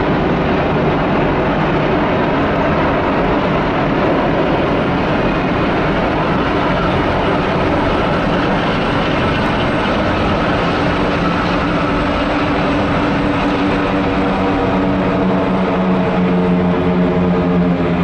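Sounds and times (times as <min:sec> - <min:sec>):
helicopters flying overhead: 0:00.0 - 0:18.0.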